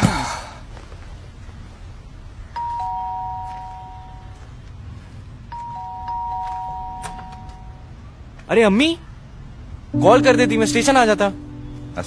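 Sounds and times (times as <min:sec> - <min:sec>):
two-tone doorbell chime: 0:02.6 - 0:04.4, 0:05.6 - 0:07.8.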